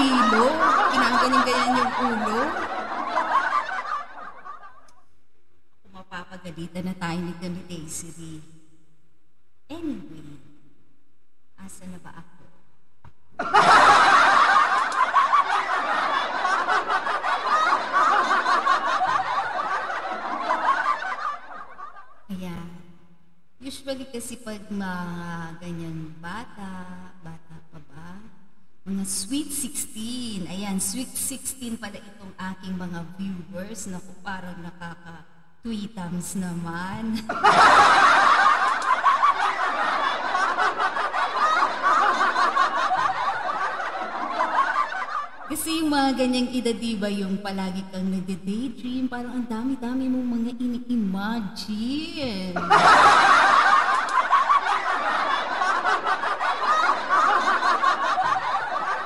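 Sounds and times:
group of people laughing: 0.0s - 4.9s, 13.4s - 22.2s, 37.1s - 45.5s, 52.6s - 59.0s.

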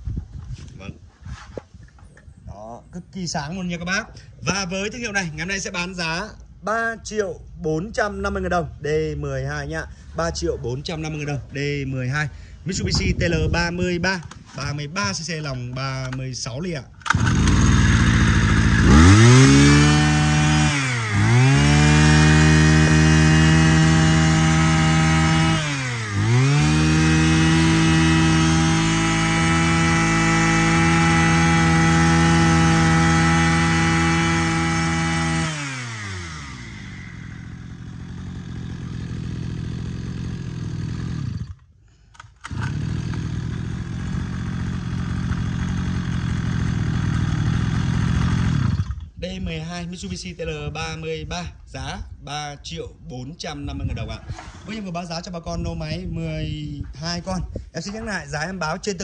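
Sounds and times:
two-stroke brush cutter engine: 15.8s - 49.2s.

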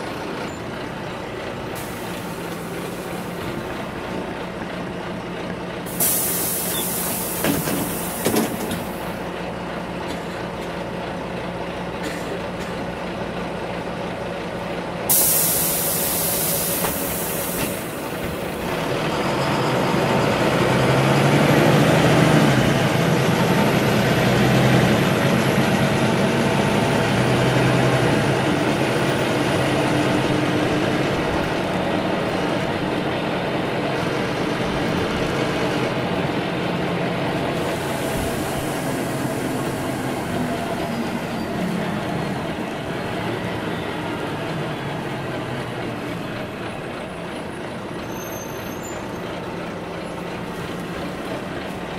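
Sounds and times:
bus engine and drive noise: 0.0s - 51.9s
compressed air hiss: 5.9s - 9.0s, 15.1s - 18.5s, 37.5s - 40.4s.

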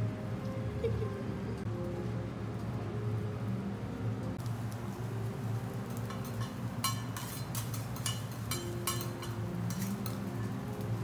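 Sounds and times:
metal spatula clinking on griddle: 6.0s - 10.6s.

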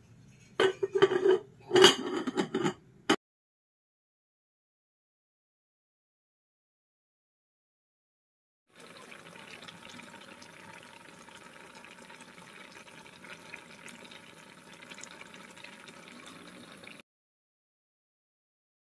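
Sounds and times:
stew boiling and bubbling: 8.7s - 17.0s.

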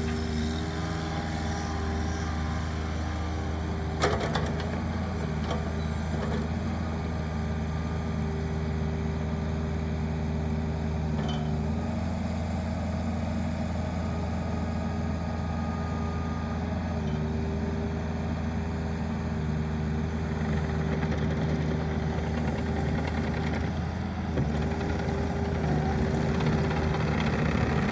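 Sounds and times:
hydraulic whine: 0.0s - 6.2s
diesel engine running: 0.0s - 27.9s.

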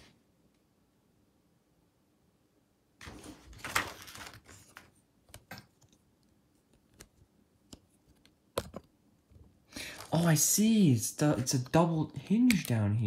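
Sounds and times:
plastic toy rustling clatter: 3.0s - 5.0s, 9.9s - 10.2s.

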